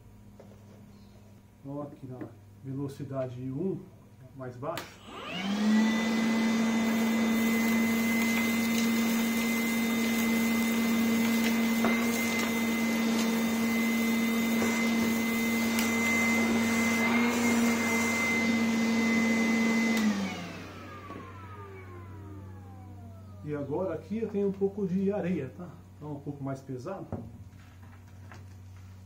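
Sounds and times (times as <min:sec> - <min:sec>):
cordless vacuum motor humming: 0:04.9 - 0:23.8
hose sucking up sawdust: 0:05.1 - 0:21.2.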